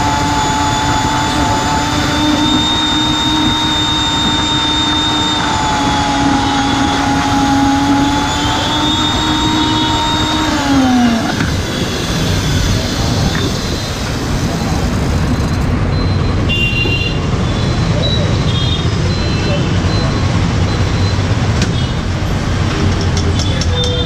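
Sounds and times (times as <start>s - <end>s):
mixer grinder motor whine: 0.0s - 15.7s
street noise: 0.0s - 24.0s.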